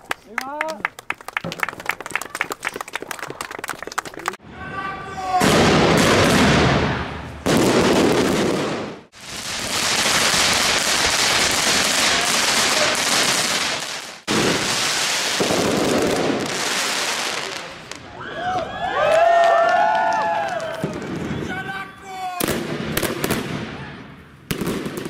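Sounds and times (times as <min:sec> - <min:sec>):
fireworks crackling and hissing: 0:05.2 - 0:18.2, 0:22.4 - 0:25.0.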